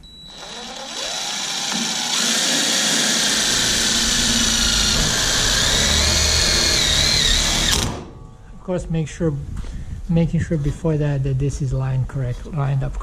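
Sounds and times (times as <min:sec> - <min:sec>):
cordless drill whining: 0:00.0 - 0:08.0.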